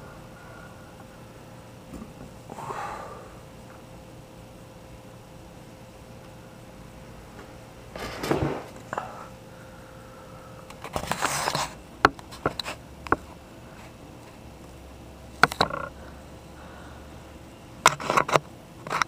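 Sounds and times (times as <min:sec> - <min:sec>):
handling rustling and scraping: 0:10.8 - 0:14.4
sharp clicks and knocks: 0:15.4 - 0:15.9, 0:17.8 - 0:19.0.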